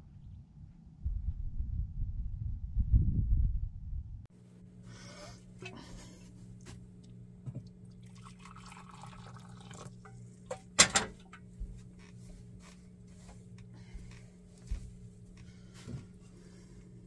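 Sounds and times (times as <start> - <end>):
steady low hum: 0.0 - 17.0
water pouring into a bowl: 7.8 - 10.1
kettle clanking onto stove: 10.5 - 11.4.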